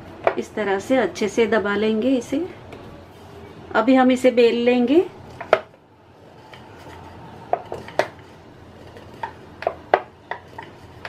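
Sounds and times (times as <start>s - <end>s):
rolling pin rolling dough: 4.7s - 11.0s.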